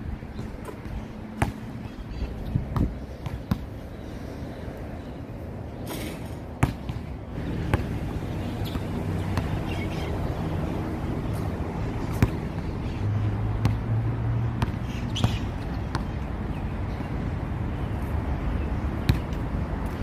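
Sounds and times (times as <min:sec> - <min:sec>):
basketball bouncing on hard court: 0:01.4 - 0:01.7, 0:02.7 - 0:03.7, 0:06.6 - 0:09.6, 0:12.1 - 0:12.7, 0:14.6 - 0:16.2, 0:19.1 - 0:19.4.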